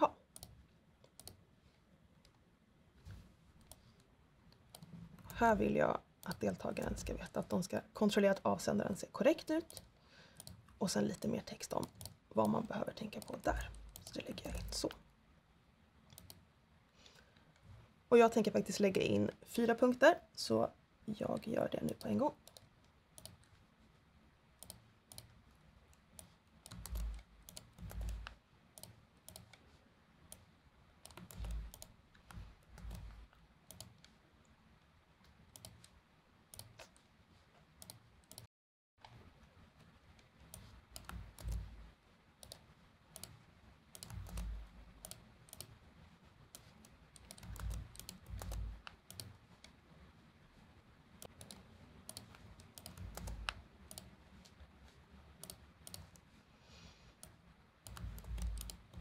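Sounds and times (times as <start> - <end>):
typing on computer keyboard: 26.0 - 29.6, 31.0 - 34.1, 37.8 - 38.5, 40.4 - 41.8, 43.2 - 45.8, 46.5 - 49.8, 51.2 - 54.6, 55.4 - 56.2, 57.2 - 59.0.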